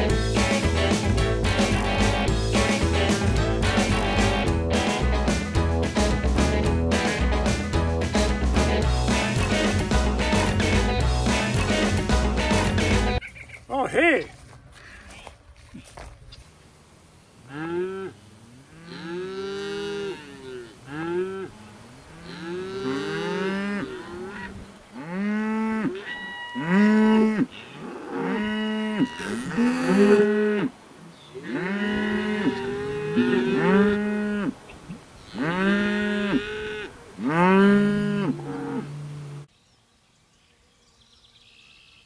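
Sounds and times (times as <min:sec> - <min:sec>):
cattle mooing: 0:17.5 - 0:30.7, 0:31.4 - 0:34.6, 0:35.2 - 0:39.4.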